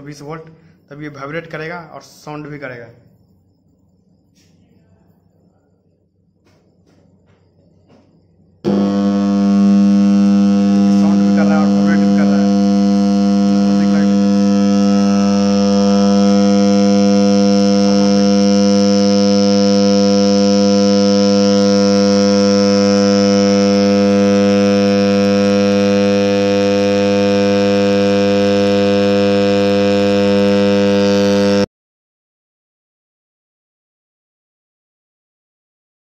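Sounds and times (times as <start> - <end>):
transformer humming: 8.7 - 31.7.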